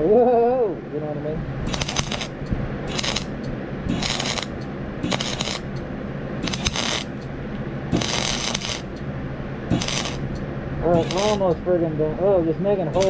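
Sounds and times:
low hum: 0:00.0 - 0:13.0
arc welder crackling: 0:01.6 - 0:12.0, 0:12.8 - 0:13.0.

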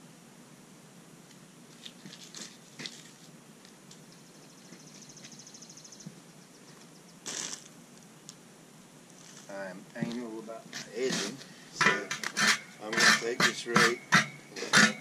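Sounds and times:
hands rustling soil and plants: 0:01.7 - 0:04.1, 0:06.6 - 0:08.4, 0:09.1 - 0:12.4
boot crunching into mulch: 0:07.3 - 0:07.7.

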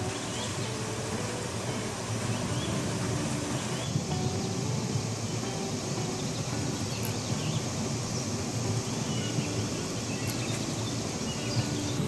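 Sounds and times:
faint bird chirps: 0:00.0 - 0:00.8, 0:05.2 - 0:12.0
waterfall rushing: 0:00.0 - 0:12.0.

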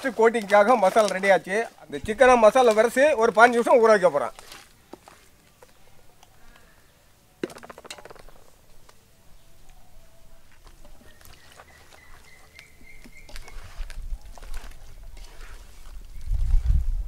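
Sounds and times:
small knocks against a pot: 0:07.4 - 0:08.5.

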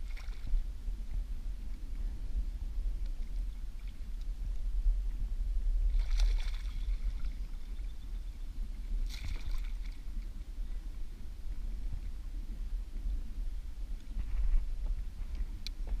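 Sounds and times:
water splashing: 0:00.0 - 0:00.6, 0:05.9 - 0:07.7, 0:09.0 - 0:10.2
fish thrashing at the surface: 0:05.9 - 0:07.3, 0:09.0 - 0:10.0.

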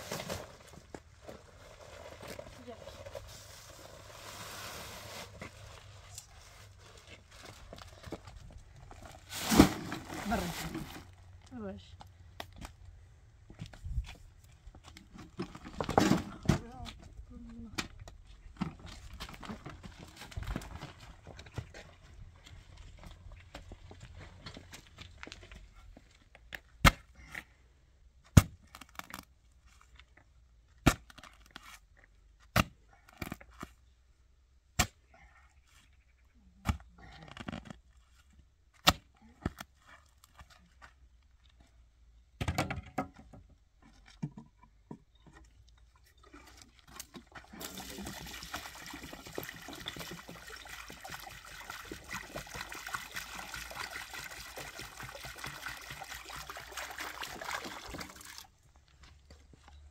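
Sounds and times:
water pouring into wheelbarrow: 0:00.0 - 0:05.9, 0:09.1 - 0:11.2, 0:46.9 - 0:58.6
shovel scraping into gravel: 0:09.3 - 0:10.9.

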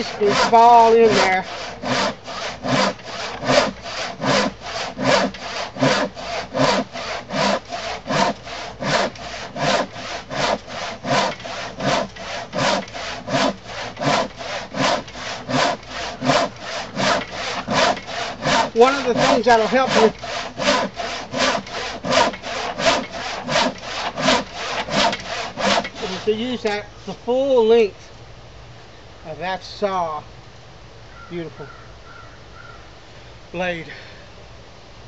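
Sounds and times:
handsaw cutting wood: 0:00.0 - 0:26.8.

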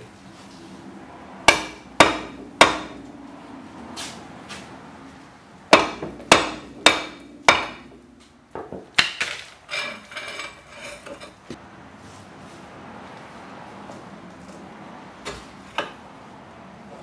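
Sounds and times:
rotor scraping and rattling: 0:00.0 - 0:11.6
hammer striking metal rotor: 0:01.4 - 0:04.7, 0:05.7 - 0:11.0.

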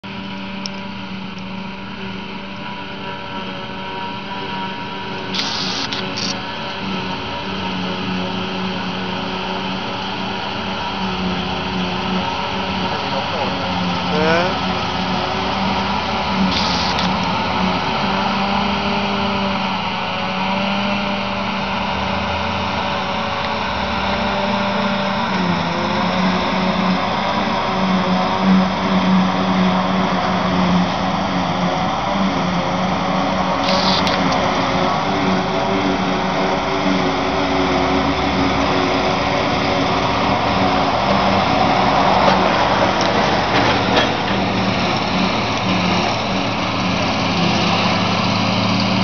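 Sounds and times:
harvester engine hum: 0:00.0 - 0:49.0
constant rushing noise: 0:00.1 - 0:49.0
brief hiss: 0:05.4 - 0:06.4, 0:33.6 - 0:34.2.

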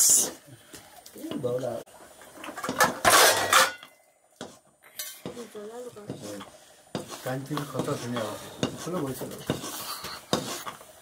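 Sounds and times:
metal spoon scraping a pot: 0:02.4 - 0:04.0, 0:06.1 - 0:10.9.

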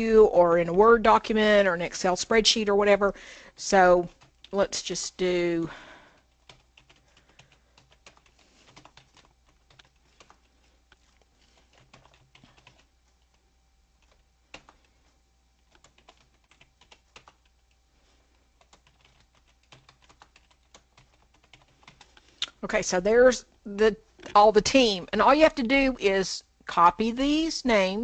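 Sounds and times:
typing on computer keyboard: 0:06.2 - 0:13.4, 0:14.0 - 0:15.0, 0:15.6 - 0:17.7, 0:18.6 - 0:22.3.

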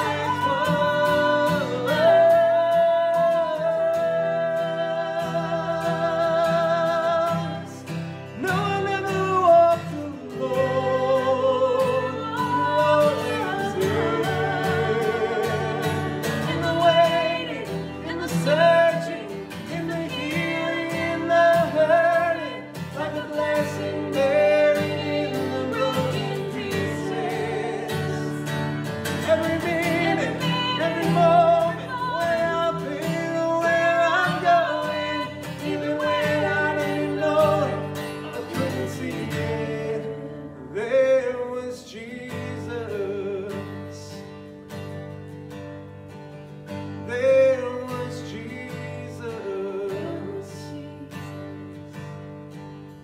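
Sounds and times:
woman singing with vibrato: 0:00.0 - 0:07.8, 0:11.7 - 0:28.6, 0:29.2 - 0:39.6
strummed acoustic guitar: 0:00.0 - 0:53.0.

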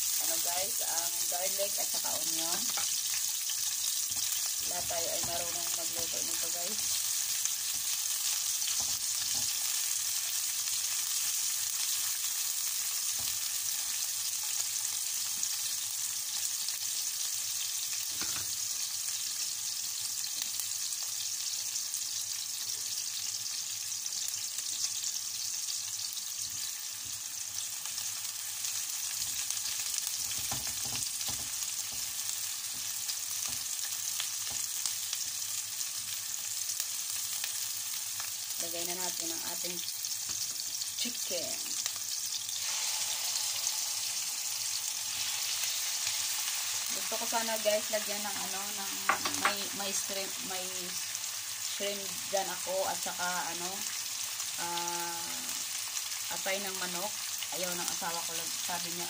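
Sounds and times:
onion sizzling in hot oil: 0:00.0 - 0:59.0
spatula knocking against pan: 0:49.0 - 0:49.6.

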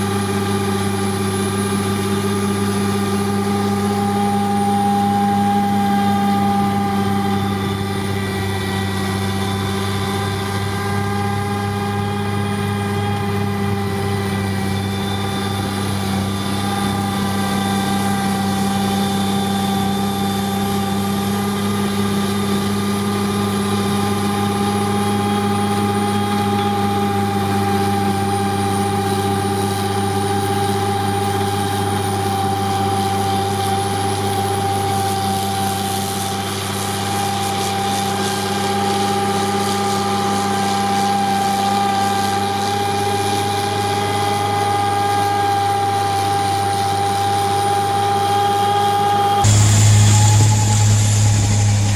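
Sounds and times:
heavy machinery engine drone: 0:00.0 - 0:51.9
snowblower auger whine: 0:00.0 - 0:51.9.

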